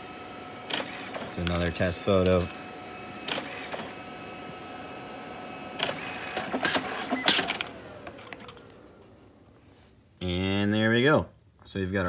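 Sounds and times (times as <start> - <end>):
photo printer humming: 0.0 - 9.5
printer clicking and clacking: 0.7 - 1.6, 3.3 - 3.9, 5.8 - 7.8.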